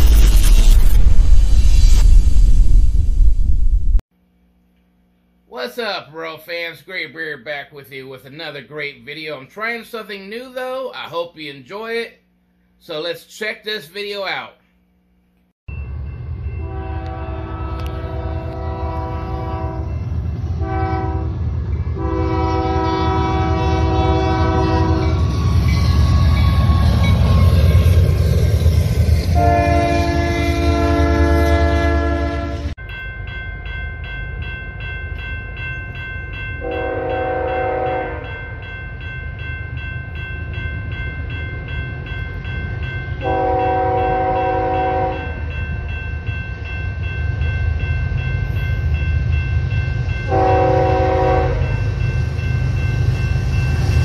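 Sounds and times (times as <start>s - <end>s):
rumble of passing freight train: 15.7s - 54.0s
locomotive air horn blasts: 16.6s - 20.0s, 20.6s - 21.4s, 22.0s - 25.7s, 29.4s - 32.8s, 36.6s - 38.3s, 43.2s - 45.4s, 50.3s - 51.8s.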